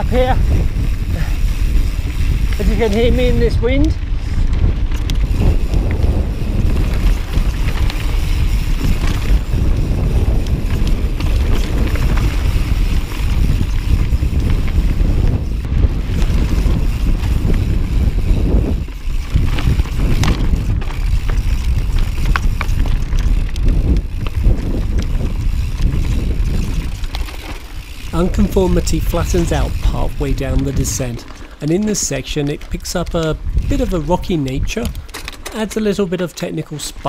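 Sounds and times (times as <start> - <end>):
wind buffeting microphone: 0.0 - 36.0
bike clicking over rocks: 0.0 - 37.0.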